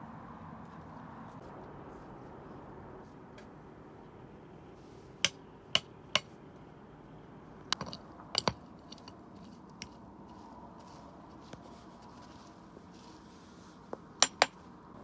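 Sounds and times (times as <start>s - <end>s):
low steady background noise: 0.0s - 15.0s
sharp knocks of hard objects: 7.7s - 8.6s, 14.2s - 14.6s.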